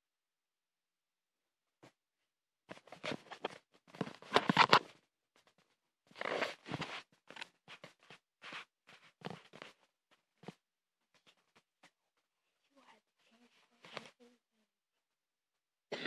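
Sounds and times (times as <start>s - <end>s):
phone handling rustling on fabric: 2.7s - 5.0s.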